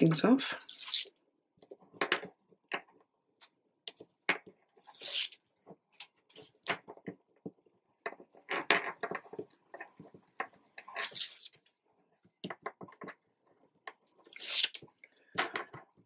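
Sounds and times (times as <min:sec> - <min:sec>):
tape backing peeling: 0:14.3 - 0:14.8.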